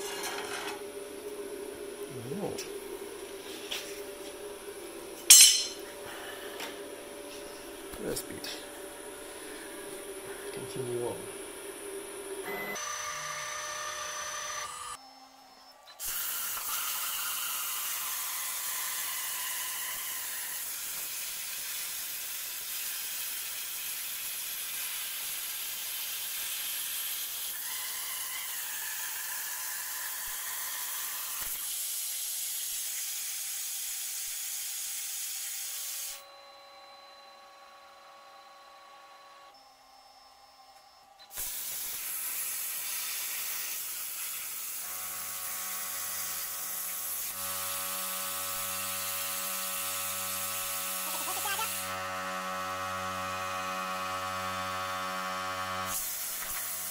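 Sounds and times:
faint humming tones: 0.2 - 16.0, 36.2 - 41.3
plasma cutter hissing: 16.0 - 27.6, 28.6 - 36.2, 41.3 - 44.8, 45.5 - 47.4, 50.8 - 51.8, 55.9 - 56.9.

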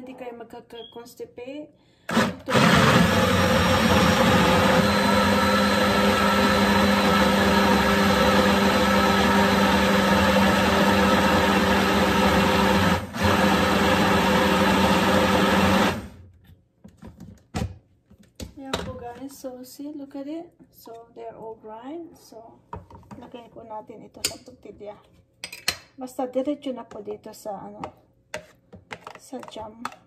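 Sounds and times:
blender motor grinding: 2.1 - 16.2.

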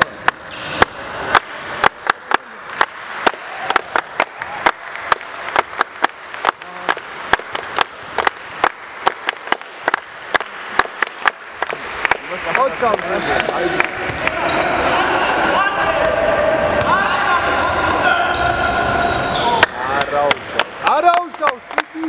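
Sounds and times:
few people clapping: 1.3 - 14.4, 19.9 - 22.0.

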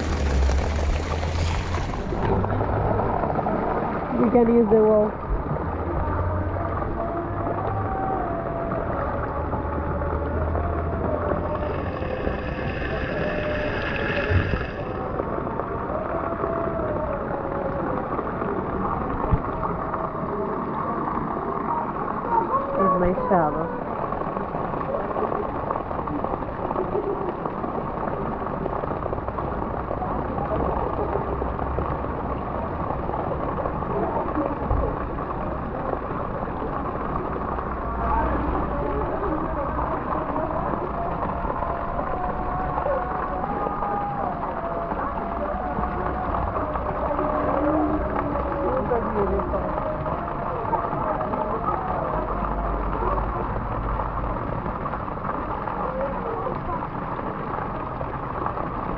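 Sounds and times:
wind noise on microphone: 0.0 - 4.3
pool water sloshing and splashing: 0.0 - 58.9.

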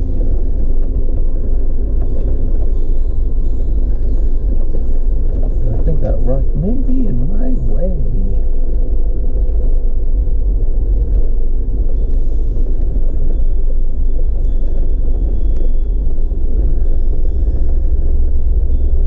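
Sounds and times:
off-road vehicle engine rumble: 0.0 - 19.0.

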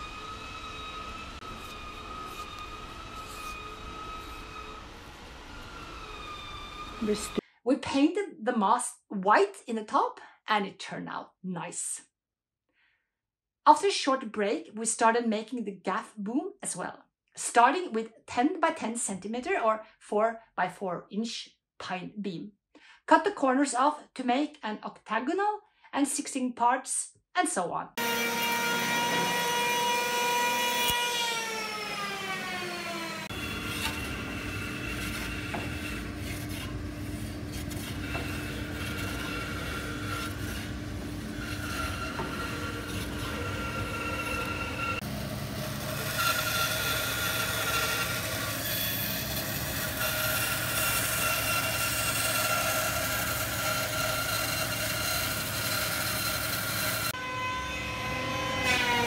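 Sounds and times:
electric hand planer shaving wood: 0.0 - 7.4, 28.0 - 59.0.

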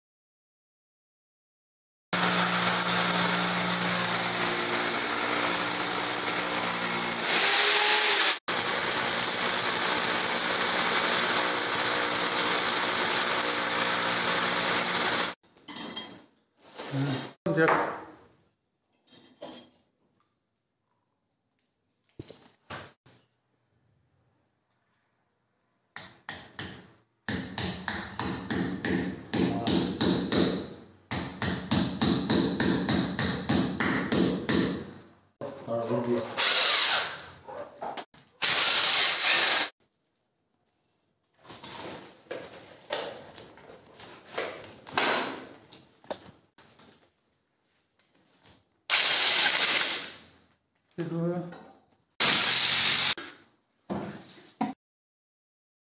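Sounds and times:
rotary hammer drilling concrete: 2.2 - 15.4, 36.4 - 37.2, 38.4 - 39.8, 48.9 - 50.2, 52.2 - 53.2.

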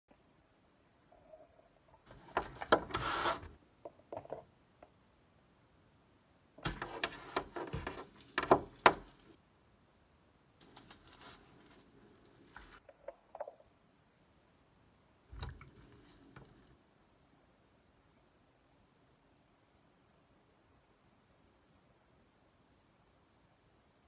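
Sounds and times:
knocks on wooden tabletop: 6.7 - 9.1
hands rubbing and rustling: 10.6 - 12.8.

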